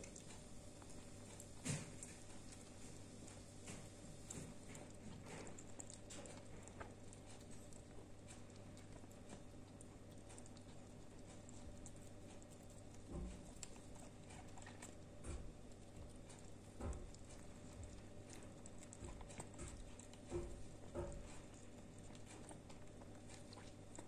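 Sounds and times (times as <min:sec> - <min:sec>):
kittens chewing and smacking: 0:00.0 - 0:24.0
steady low hum: 0:00.0 - 0:24.0.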